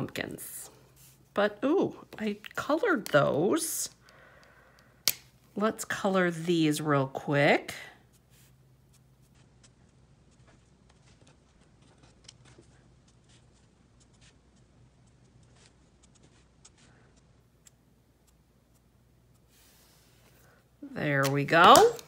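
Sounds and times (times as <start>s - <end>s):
low steady hum: 0.0s - 22.0s
marker nib scratching on cardstock: 9.2s - 19.9s.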